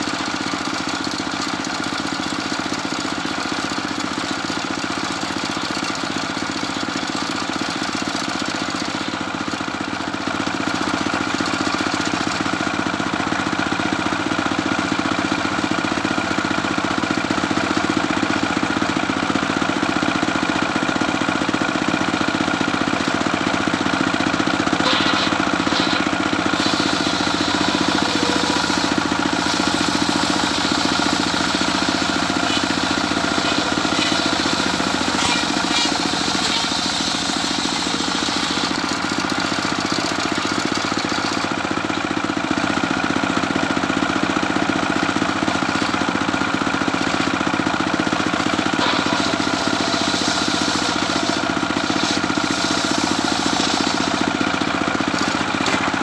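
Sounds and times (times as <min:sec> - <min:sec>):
circular sawmill running: 0:00.0 - 0:56.0
saw blade cutting timber: 0:24.6 - 0:41.2, 0:48.4 - 0:56.0.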